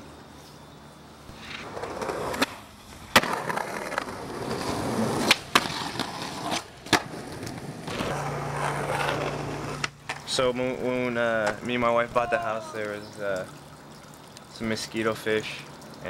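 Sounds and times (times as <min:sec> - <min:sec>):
skateboard wheels rolling on concrete: 0:00.0 - 0:13.1
skateboard clacking on ground: 0:01.4 - 0:10.4, 0:11.4 - 0:12.7.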